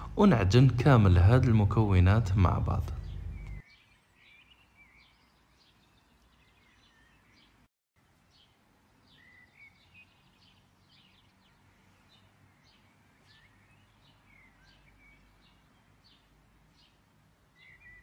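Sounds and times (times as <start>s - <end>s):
faint low hum: 0.0s - 3.6s
bird chirps: 0.0s - 7.7s, 8.3s - 18.0s.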